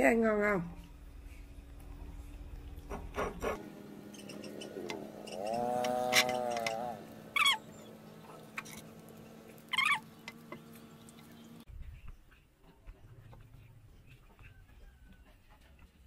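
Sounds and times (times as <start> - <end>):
baby macaque squeaking: 7.4 - 7.7, 9.7 - 10.0.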